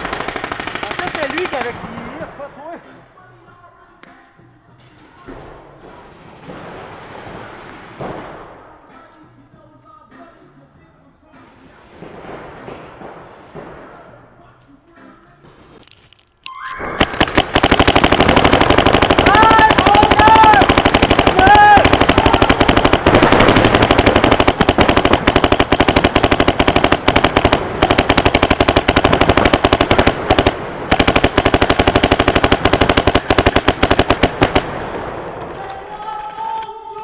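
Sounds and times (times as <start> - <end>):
paintball markers firing: 0.0 - 1.7, 17.0 - 34.7.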